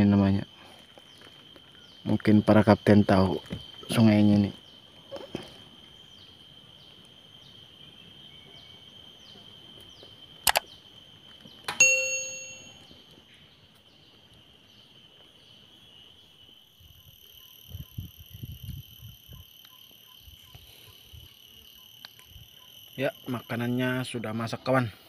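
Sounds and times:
falling insect chirp: 0.0s - 25.0s
insects droning: 0.0s - 25.0s
metal object ringing: 11.7s - 12.9s.

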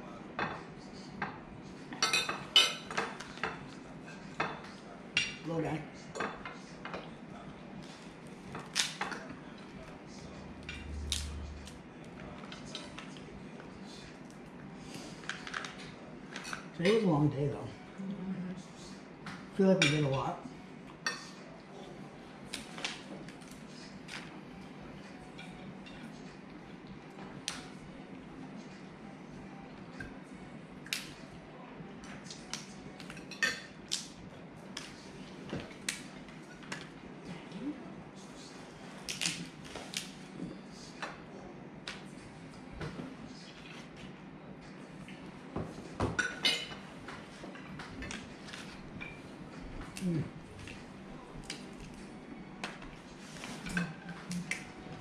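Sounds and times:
dishes and utensils clinking: 2.0s - 5.4s, 45.0s - 49.3s.

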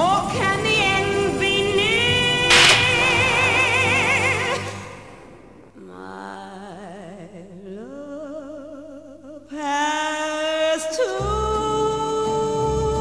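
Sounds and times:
person singing with vibrato: 0.0s - 13.0s
musical accompaniment: 2.5s - 5.6s.

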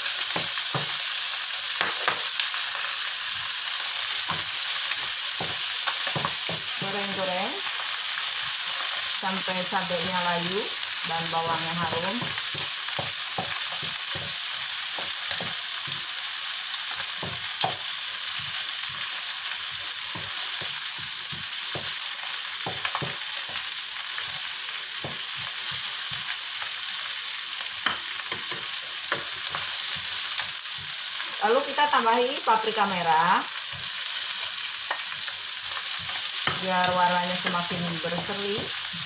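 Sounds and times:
vegetables sizzling in hot oil: 0.0s - 39.0s.

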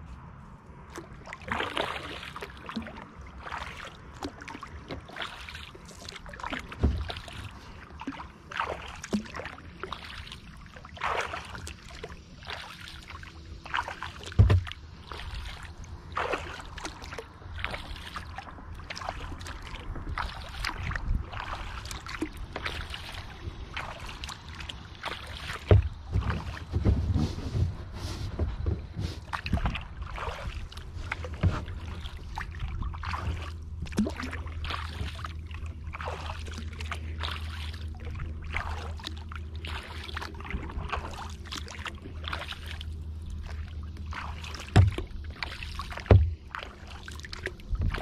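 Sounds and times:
paddle strokes splashing in water: 0.7s - 48.0s
dull low thumps: 25.5s - 35.9s.

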